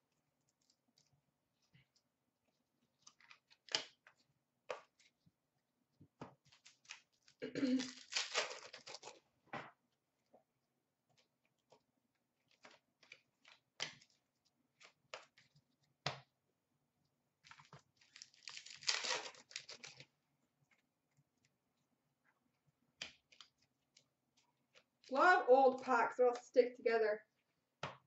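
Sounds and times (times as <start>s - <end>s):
cards crackling and clicking: 3.0s - 5.2s, 6.4s - 9.2s, 12.4s - 16.2s, 17.4s - 20.1s, 23.0s - 24.1s
card pack wrappers tearing: 6.5s - 9.2s, 17.5s - 20.1s.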